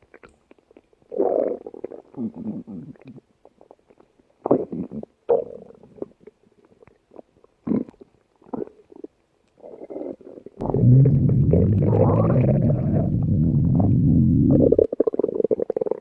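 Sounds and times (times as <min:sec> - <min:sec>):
stomach gurgling: 0:00.0 - 0:16.0
low stomach rumble: 0:05.8 - 0:16.0.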